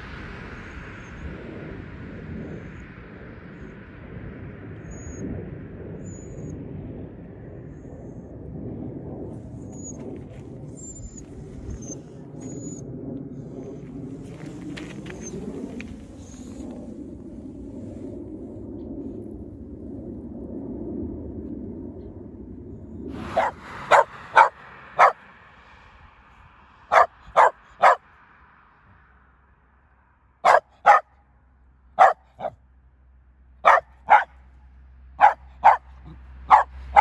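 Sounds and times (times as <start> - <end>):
low rumble: 0.0 - 37.0
small dog barking: 23.2 - 25.2, 26.9 - 28.0, 30.4 - 31.1, 32.0 - 32.6, 33.6 - 34.4, 35.2 - 37.0.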